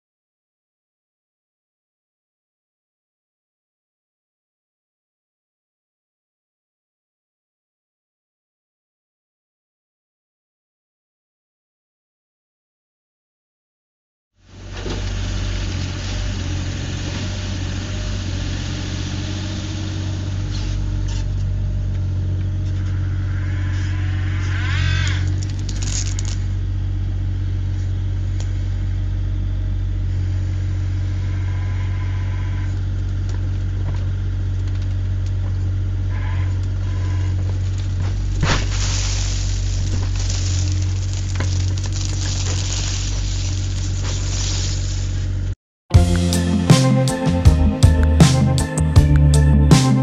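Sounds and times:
excavator diesel engine running: 0:14.5 - 0:24.6, 0:26.4 - 0:50.0.

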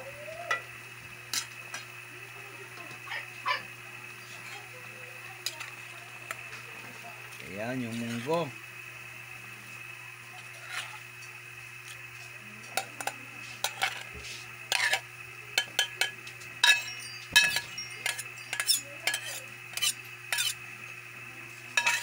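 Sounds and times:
metal spoon clinking on metal bowl: 0:15.6 - 0:20.6, 0:21.8 - 0:22.0.

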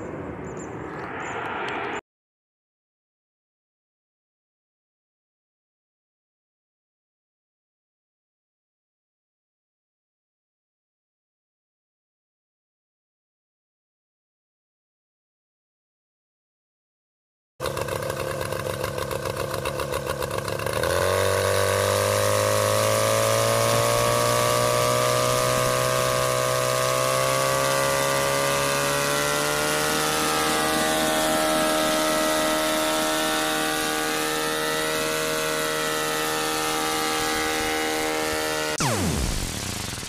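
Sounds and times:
small engine revving: 0:17.6 - 0:40.0.

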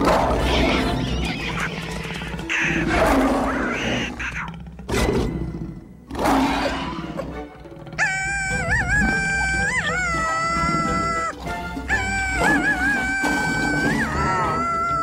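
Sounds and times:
film music: 0:00.0 - 0:15.0
animal cries: 0:00.3 - 0:04.6, 0:07.8 - 0:15.0.

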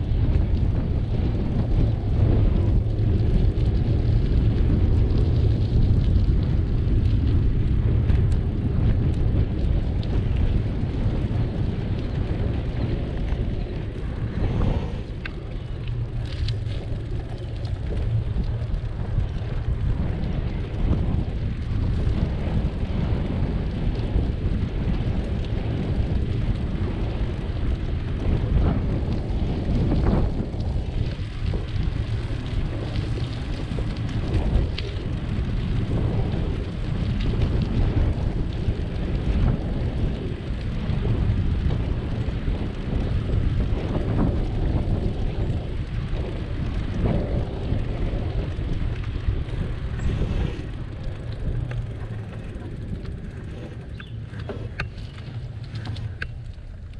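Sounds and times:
road noise: 0:00.0 - 0:28.3, 0:40.2 - 0:56.9
wind buffeting microphone: 0:00.0 - 0:56.9
faint clicks and rattles: 0:01.6 - 0:23.0, 0:23.6 - 0:56.9.

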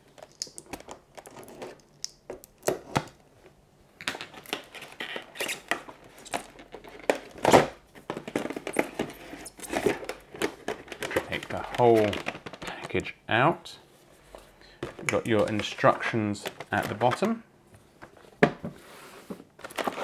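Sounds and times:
cardboard rustling and sliding: 0:18.2 - 0:20.0.

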